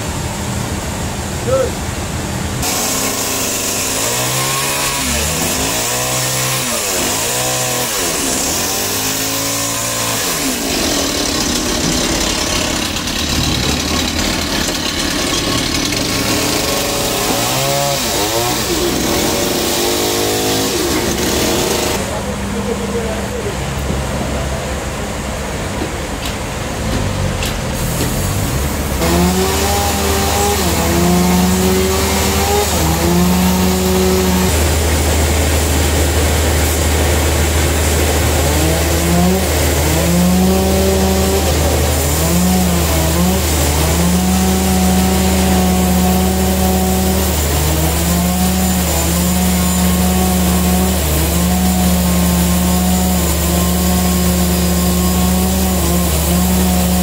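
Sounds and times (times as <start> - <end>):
band saw drive tone: 2.6 - 22.1, 26.9 - 57.0.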